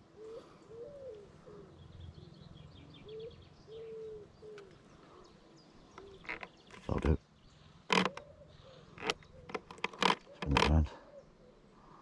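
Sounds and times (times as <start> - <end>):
pigeon cooing: 0.0 - 2.3
small bird chirping: 0.7 - 11.4.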